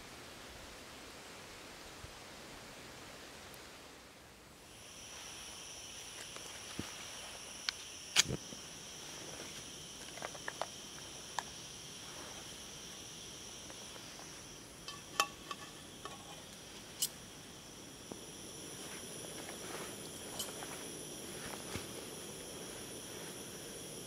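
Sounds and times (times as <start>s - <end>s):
gas stove hissing: 4.6s - 24.0s
stove and pan clicks and knocks: 14.9s - 16.4s.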